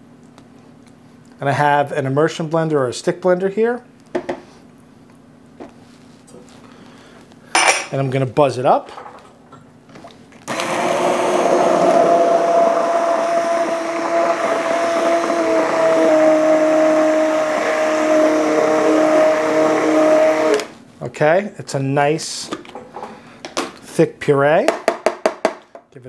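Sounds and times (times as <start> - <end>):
immersion blender whining: 10.4 - 20.7.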